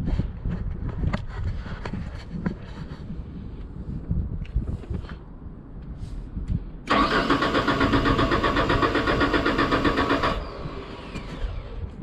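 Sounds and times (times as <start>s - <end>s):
engine starter cranking: 6.9s - 11.8s
starter whine spinning down: 6.9s - 12.0s.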